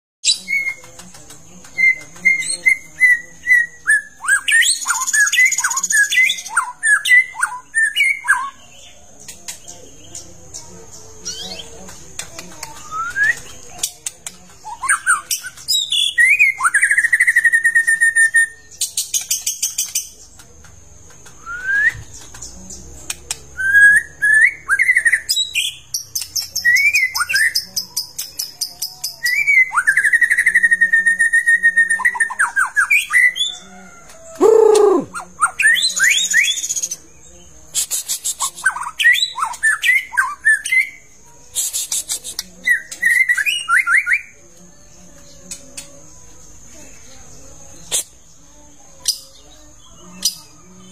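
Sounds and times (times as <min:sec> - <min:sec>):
bird singing with whistles: 0:00.2 - 0:00.9, 0:01.7 - 0:08.7, 0:12.7 - 0:13.6, 0:14.6 - 0:20.1, 0:21.4 - 0:22.3, 0:23.6 - 0:33.6, 0:34.4 - 0:37.0, 0:37.8 - 0:41.0, 0:41.6 - 0:44.4.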